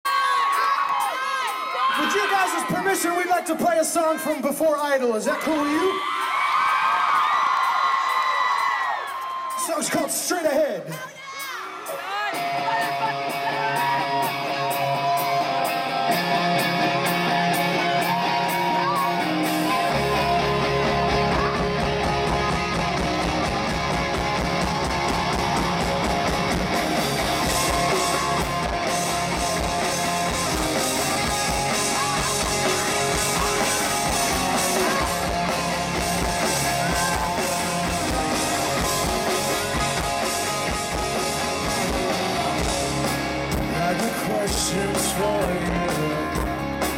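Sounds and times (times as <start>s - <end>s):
bass guitar: 12.1s - 46.9s
electric guitar: 12.1s - 46.9s
drum kit: 12.4s - 46.9s.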